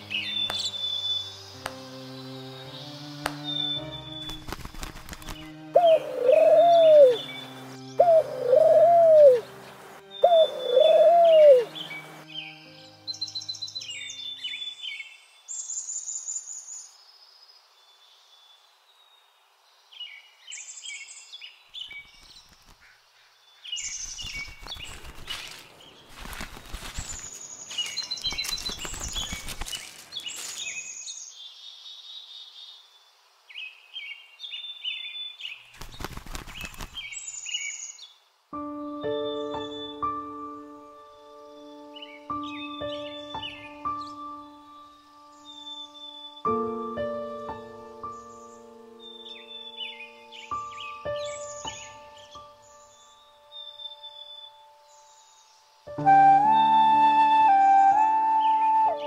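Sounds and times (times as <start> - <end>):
small birds chirping: 0.0 - 59.0
pigeon wings flapping: 4.2 - 5.5, 24.2 - 30.2, 35.8 - 37.1
pigeon cooing: 5.8 - 7.2, 8.0 - 9.4, 10.3 - 11.7.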